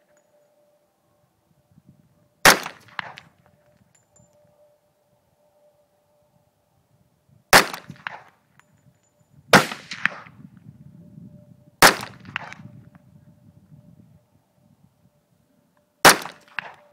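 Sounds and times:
pistol gunshots: 2.4s - 3.3s, 7.5s - 8.3s, 9.5s - 10.3s, 11.8s - 12.6s, 16.0s - 16.9s.

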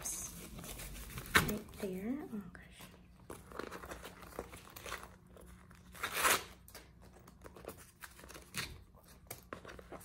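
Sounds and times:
packing material rustling: 3.2s - 10.0s.

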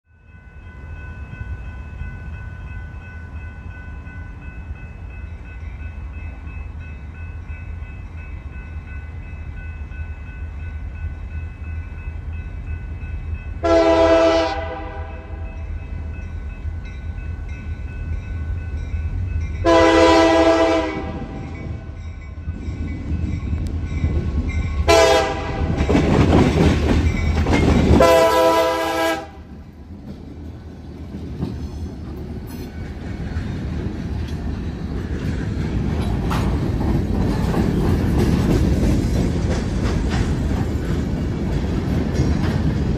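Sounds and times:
diesel locomotive engine rumble: 0.2s - 42.9s
train horn blasts: 13.6s - 15.6s, 19.6s - 22.0s, 24.8s - 25.8s, 28.0s - 29.5s.

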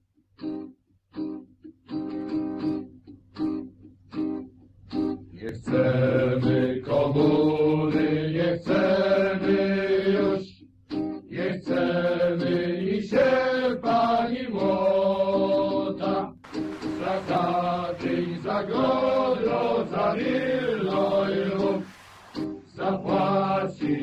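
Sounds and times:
acoustic guitar: 0.4s - 24.0s
person singing long held notes: 11.4s - 22.0s, 22.6s - 24.0s.

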